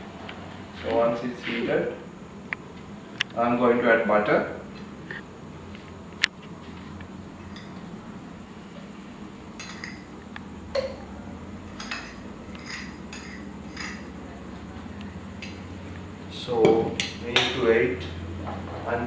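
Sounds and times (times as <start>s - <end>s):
steady low hum: 0.0s - 19.0s
metal spoon clinking on plate: 9.6s - 10.1s, 11.8s - 14.1s.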